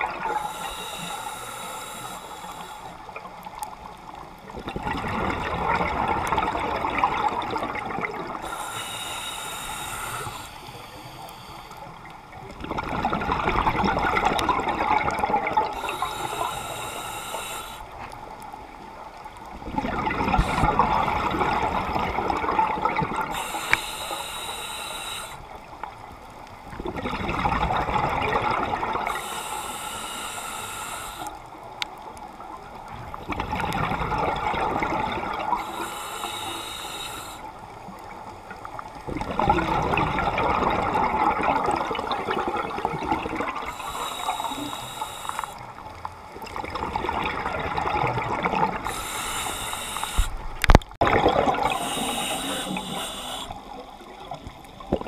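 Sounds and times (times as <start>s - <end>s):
regulator air hiss: 0.2s - 3.1s, 8.3s - 12.1s, 15.7s - 18.1s, 20.3s - 22.0s, 23.2s - 25.8s, 29.0s - 31.7s, 35.3s - 37.9s, 43.7s - 45.8s, 48.8s - 50.5s, 51.6s - 54.6s
exhaled bubbles rushing: 4.5s - 8.4s, 12.5s - 16.0s, 19.6s - 23.3s, 26.8s - 29.1s, 32.9s - 35.6s, 39.0s - 43.8s, 46.3s - 49.2s, 50.4s - 55.0s.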